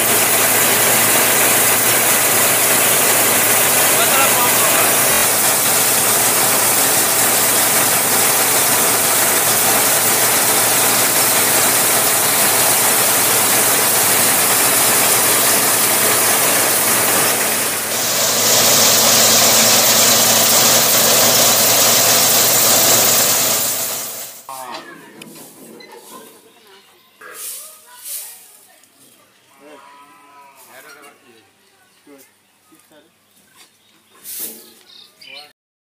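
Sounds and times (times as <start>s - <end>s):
threshing machine whirring and rattling: 0.0s - 24.5s
tiller engine running: 0.0s - 24.5s.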